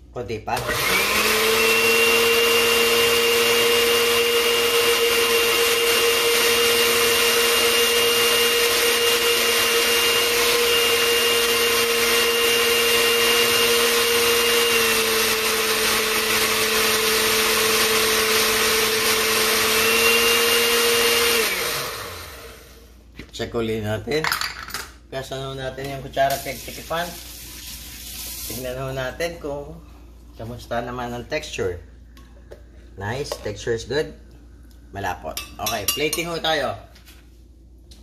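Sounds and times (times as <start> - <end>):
blender running: 0.5 - 22.8.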